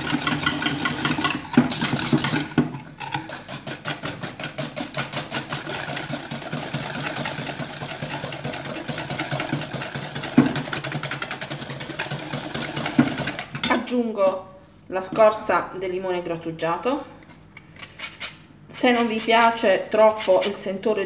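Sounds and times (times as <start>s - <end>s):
whisk rattling in metal bowl: 0.0s - 13.6s, 17.8s - 20.7s.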